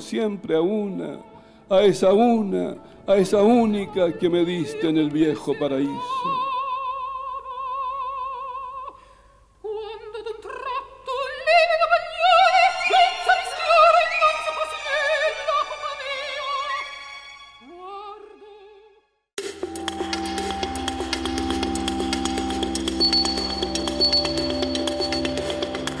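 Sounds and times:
operatic singing: 0:09.7 - 0:18.7.

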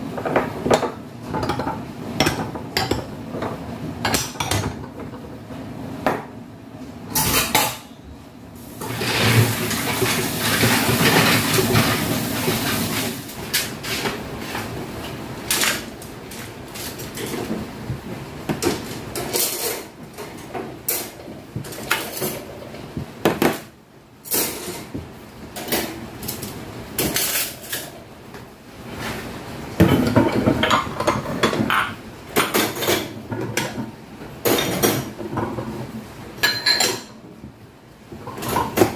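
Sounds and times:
ceramic dishes clattering: 0:36.4 - 0:37.2.

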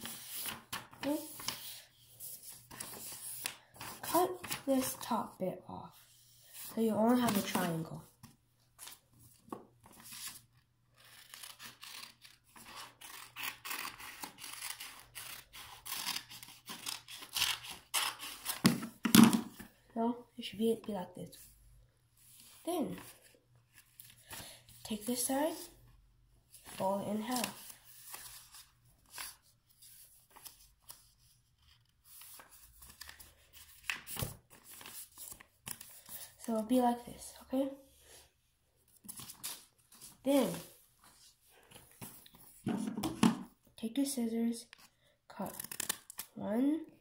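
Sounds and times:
scissors snipping paper: 0:11.1 - 0:18.8, 0:45.4 - 0:46.3
paper rustling and crinkling: 0:26.5 - 0:36.4.

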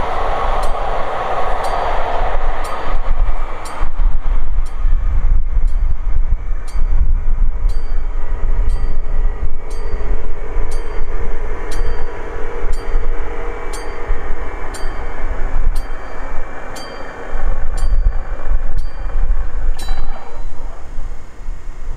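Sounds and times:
sharp rail clicks: 0:00.0 - 0:04.9, 0:09.6 - 0:21.0
train rumbling past: 0:00.0 - 0:21.9.

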